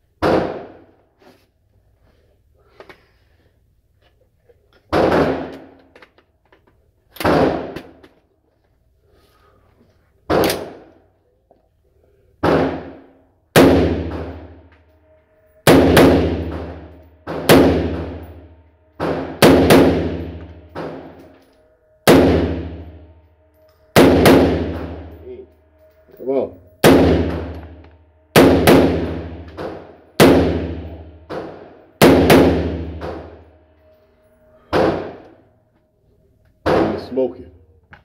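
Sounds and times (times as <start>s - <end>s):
rifle shots indoors: 0.0s - 1.1s, 4.7s - 8.4s, 10.2s - 11.1s, 12.4s - 35.5s, 36.4s - 37.4s.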